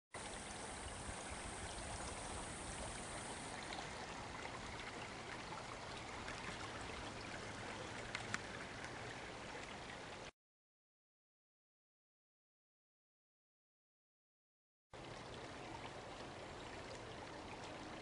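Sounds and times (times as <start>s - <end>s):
creek babbling over stones: 0.2s - 10.3s, 15.0s - 18.0s
small ticks: 8.0s - 9.0s.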